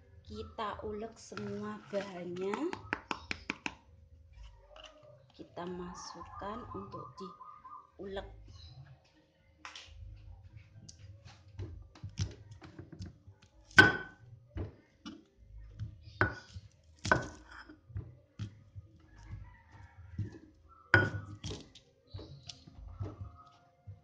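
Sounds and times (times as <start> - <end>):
stone pestle pounding and grinding: 13.7 - 24.0.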